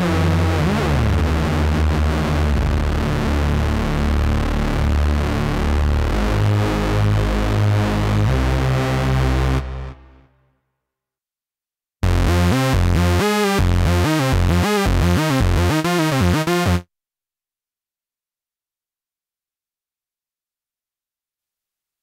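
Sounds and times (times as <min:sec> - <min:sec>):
synthesizer lead run of notes: 0:00.0 - 0:10.2, 0:12.0 - 0:16.8.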